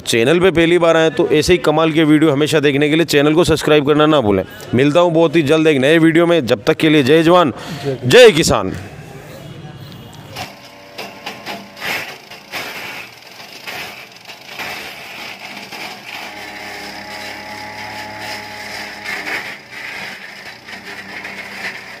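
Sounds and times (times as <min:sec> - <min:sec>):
wood chipper engine drone: 0:10.4 - 0:22.0.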